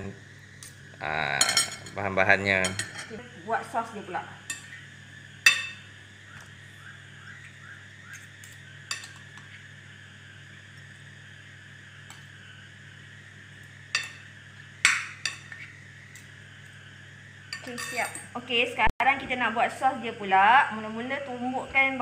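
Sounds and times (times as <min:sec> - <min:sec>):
utensils clinking on glass bowl: 0:01.4 - 0:02.0, 0:02.6 - 0:03.2, 0:17.6 - 0:18.3.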